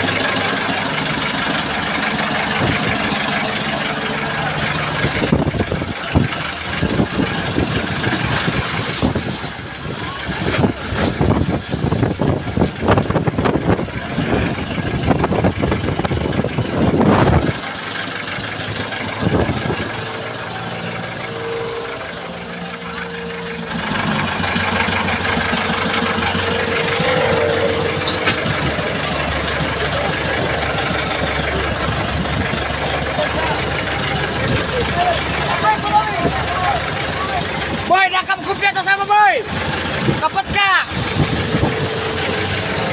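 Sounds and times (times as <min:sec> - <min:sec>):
spray crashing over deck: 0:00.0 - 0:15.4
boat engine running: 0:00.0 - 0:42.9.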